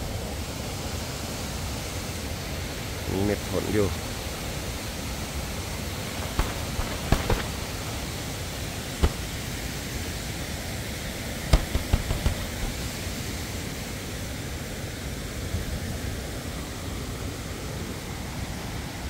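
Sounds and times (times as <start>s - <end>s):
waterfall and stream rushing: 0.0s - 10.4s, 11.5s - 19.0s
sharp clicks: 6.2s - 7.9s, 9.0s - 9.4s, 11.5s - 13.0s.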